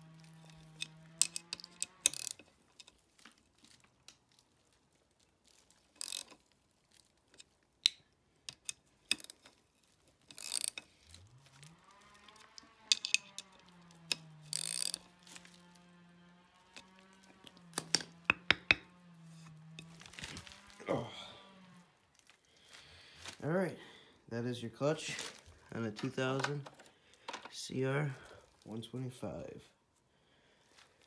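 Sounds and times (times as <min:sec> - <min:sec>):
socket ratchet clicking: 0:00.6 - 0:02.4, 0:14.1 - 0:15.1.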